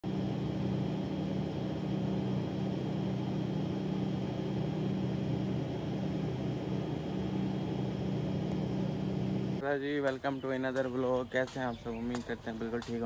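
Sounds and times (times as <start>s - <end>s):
faint high whine: 0.0s - 9.6s
machine hum: 0.0s - 9.6s.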